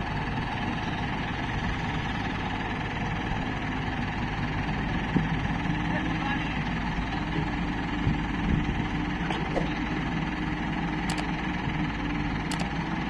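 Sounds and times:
diesel engines running: 0:00.0 - 0:13.0
sharp ticks: 0:12.5 - 0:12.7.

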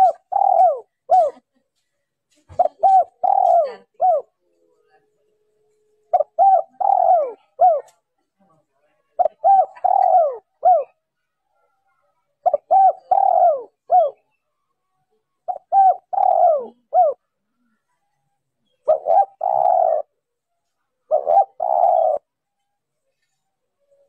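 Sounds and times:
dove cooing: 0:00.0 - 0:01.4, 0:02.5 - 0:04.4, 0:06.1 - 0:08.0, 0:09.2 - 0:11.0, 0:12.4 - 0:14.4, 0:15.4 - 0:17.4, 0:18.7 - 0:20.2, 0:21.1 - 0:22.4.

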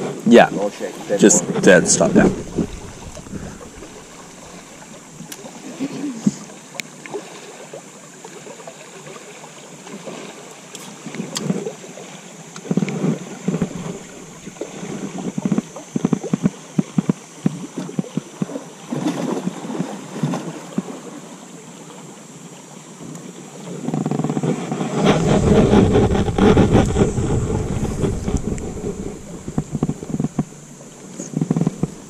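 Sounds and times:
water lapping against boat hull: 0:00.0 - 0:32.0.

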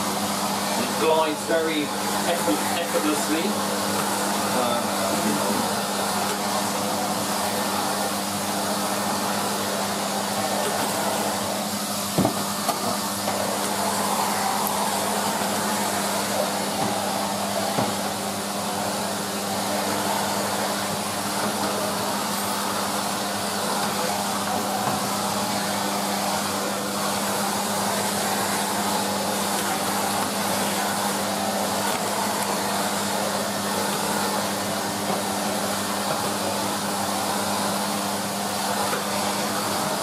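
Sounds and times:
vacuum cleaner running: 0:00.0 - 0:40.0
knock: 0:12.2 - 0:12.4.

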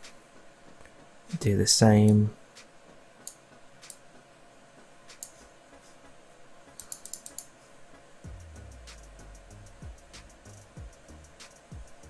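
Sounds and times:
keyboard and mouse clicks: 0:03.3 - 0:04.0, 0:05.1 - 0:05.4, 0:06.8 - 0:07.5.

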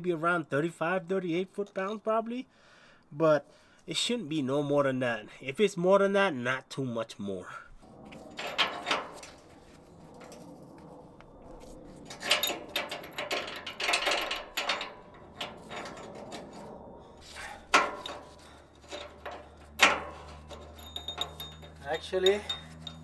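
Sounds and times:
metal wrench clinking and scraping: 0:12.0 - 0:23.0.

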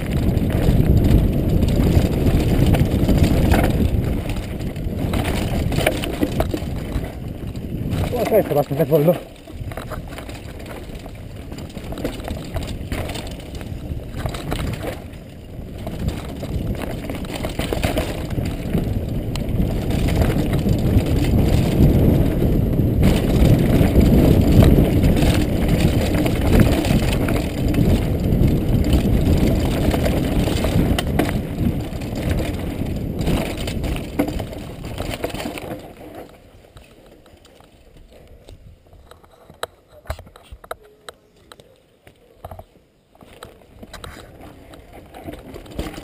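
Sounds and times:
wind buffeting: 0:00.0 - 0:35.8
bike tyres and chain rattling: 0:00.0 - 0:40.8, 0:42.4 - 0:46.0.

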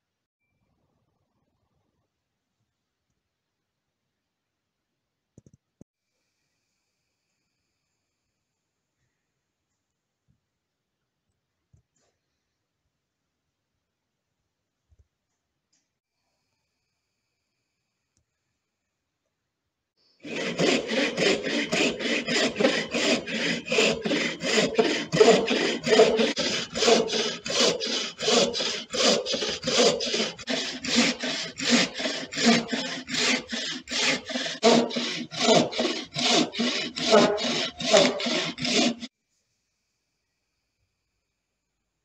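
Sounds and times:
hand saw rasping through wood: 0:20.2 - 0:39.1.

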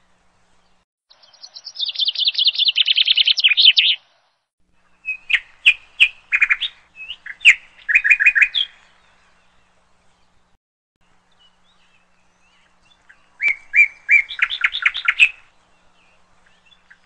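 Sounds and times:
sharp bird chirps and clicks: 0:01.1 - 0:04.0, 0:12.5 - 0:15.4
budgerigar warbling trill: 0:13.4 - 0:15.4.

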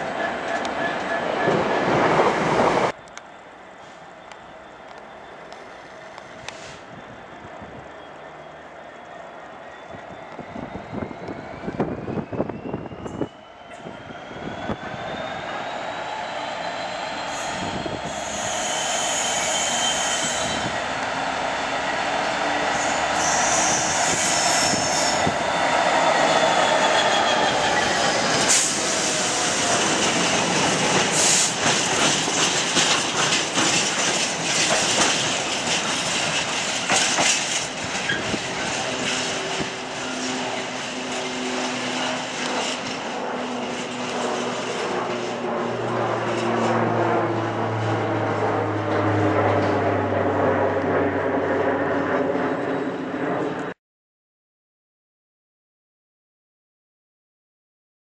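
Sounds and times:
low locomotive engine drone: 0:00.0 - 0:53.8
train wheels clattering over rail joints: 0:29.6 - 0:39.4.

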